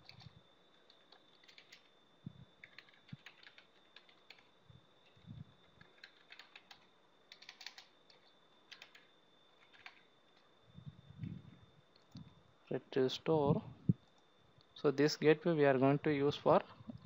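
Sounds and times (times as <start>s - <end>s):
typing on keyboard: 0.0s - 1.9s, 2.6s - 5.2s, 5.8s - 10.1s.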